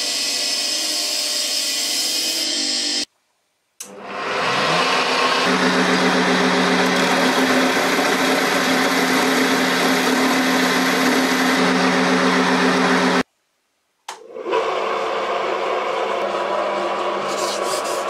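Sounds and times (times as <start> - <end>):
small grinder running: 3.9 - 13.2
sanding drum motor hum: 4.8 - 13.2.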